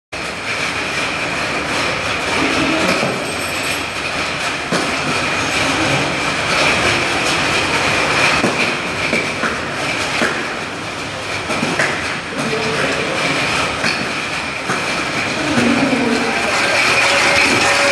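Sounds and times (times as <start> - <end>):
machine whirring with high whine: 0.2 - 17.9.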